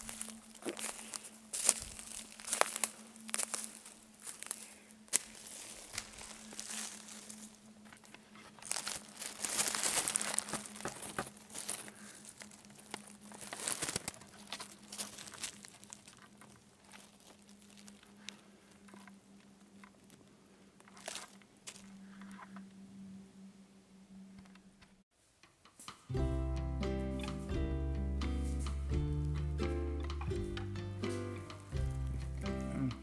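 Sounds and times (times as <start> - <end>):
dry leaves crackling underfoot: 0.0 - 22.2.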